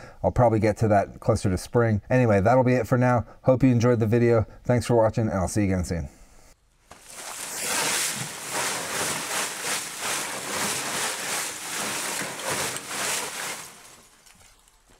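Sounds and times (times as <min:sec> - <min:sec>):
charcoal rattling in sifting box: 0:07.0 - 0:14.8.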